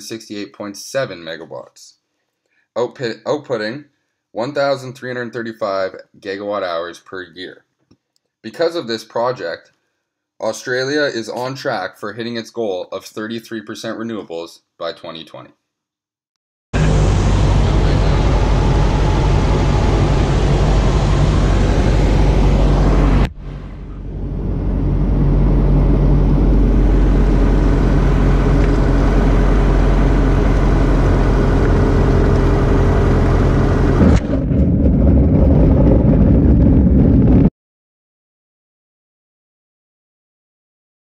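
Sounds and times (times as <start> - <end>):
light aircraft engine drone: 16.8 - 34.3.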